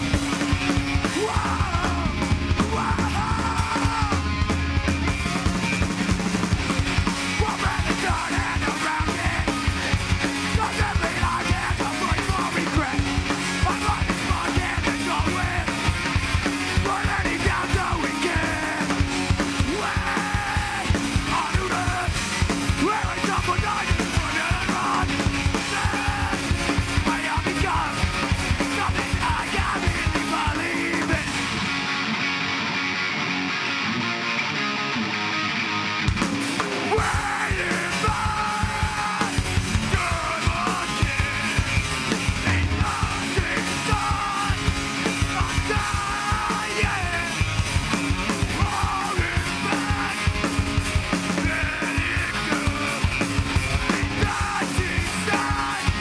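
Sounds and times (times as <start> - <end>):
fast pounding drums: 0.0 - 31.9, 36.1 - 56.0
bass guitar: 0.0 - 56.0
electric guitars: 0.0 - 56.0
person yelling vocals: 1.1 - 4.3, 36.9 - 39.3, 42.4 - 44.7, 45.3 - 47.3.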